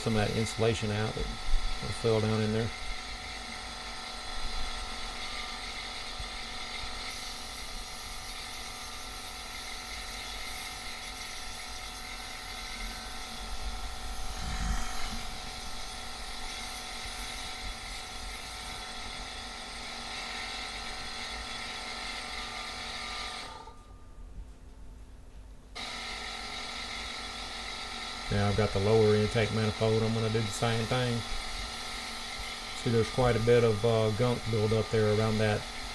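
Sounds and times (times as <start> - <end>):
compressed air hissing: 0.0 - 3.8, 4.4 - 18.6.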